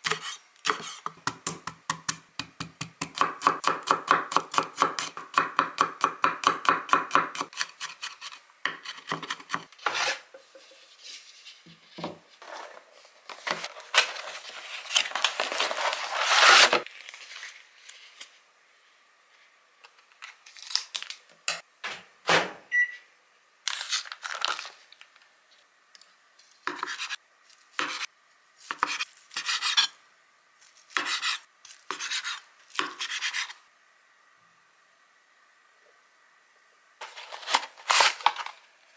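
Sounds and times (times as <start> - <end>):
plastic wrapping rustling: 12.4 - 18.3, 23.7 - 25.2, 37.0 - 38.6
knife mincing on wooden board: 31.0 - 33.5
scissors cutting plastic: 37.0 - 38.5.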